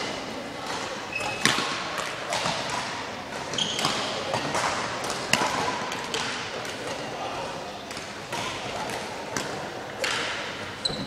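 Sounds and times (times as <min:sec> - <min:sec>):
racket striking shuttlecock: 0:00.6 - 0:07.1, 0:07.9 - 0:10.6
shoes squeaking on court floor: 0:00.9 - 0:02.6, 0:03.4 - 0:04.7, 0:10.8 - 0:11.0.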